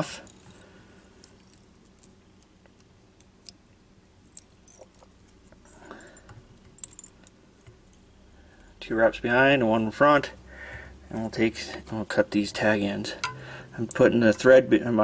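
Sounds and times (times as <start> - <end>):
small ticks and rustles of handling: 0.0 - 8.7.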